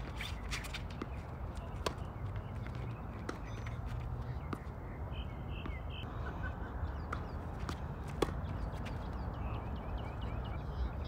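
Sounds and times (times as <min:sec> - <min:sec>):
shoe squeaks: 0:00.0 - 0:01.0, 0:03.3 - 0:04.0
tennis ball hitting racket: 0:00.0 - 0:02.5, 0:03.2 - 0:04.7, 0:07.1 - 0:09.0.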